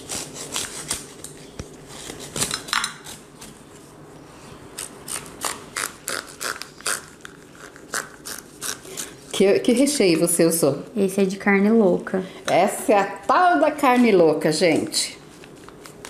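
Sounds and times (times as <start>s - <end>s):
knife sawing through crisp crust: 0.0s - 1.2s, 4.8s - 9.3s.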